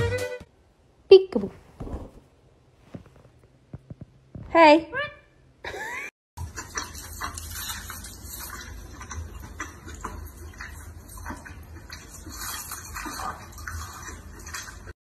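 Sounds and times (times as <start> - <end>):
wet chewing and smacking: 6.4 - 15.0.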